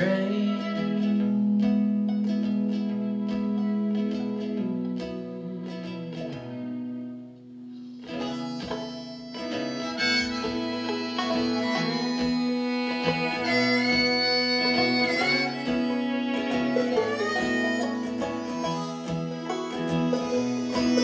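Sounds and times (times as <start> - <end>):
banjo: 0.0 - 21.0
fiddle: 0.0 - 21.0
strummed acoustic guitar: 0.0 - 21.0
harmonica solo: 7.7 - 21.0.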